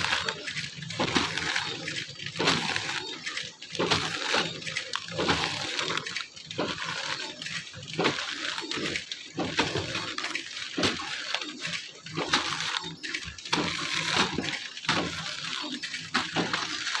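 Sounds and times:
packaging machine running: 0.0s - 17.0s
plastic film crinkling: 0.0s - 17.0s.

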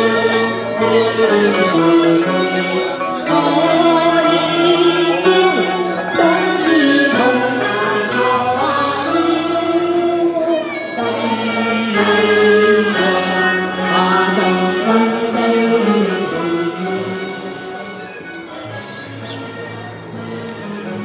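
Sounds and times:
amplified opera singing: 0.0s - 21.0s
backing track accompaniment: 0.0s - 21.0s.

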